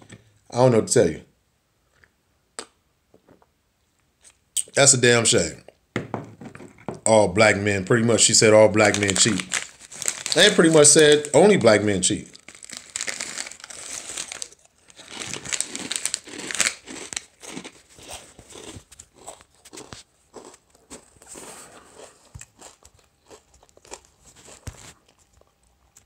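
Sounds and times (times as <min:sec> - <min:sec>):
plastic snack bag crinkling: 0:07.8 - 0:26.0
crunchy chewing: 0:12.3 - 0:26.0.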